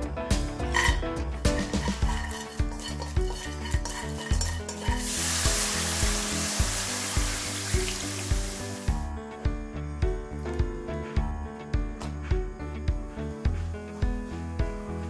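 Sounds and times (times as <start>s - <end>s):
background music with beat: 0.0s - 15.0s
chopsticks scraping in wok: 0.7s - 5.3s
water hissing in hot pan: 1.9s - 9.0s.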